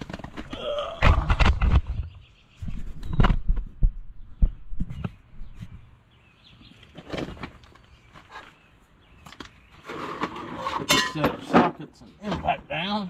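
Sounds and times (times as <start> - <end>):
knocks and thumps: 0.0 - 5.9.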